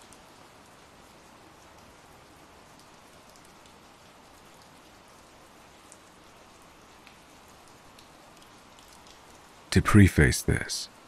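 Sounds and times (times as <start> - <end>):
raindrop ticks: 0.0 - 11.0
rain hissing: 8.0 - 11.0.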